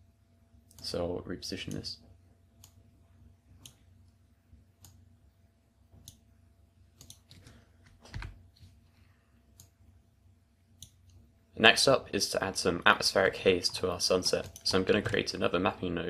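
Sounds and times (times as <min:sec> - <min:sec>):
computer mouse clicks: 0:02.6 - 0:02.8, 0:03.6 - 0:03.8, 0:04.8 - 0:05.0, 0:06.0 - 0:06.2, 0:07.0 - 0:08.4, 0:09.5 - 0:09.8, 0:10.8 - 0:11.2.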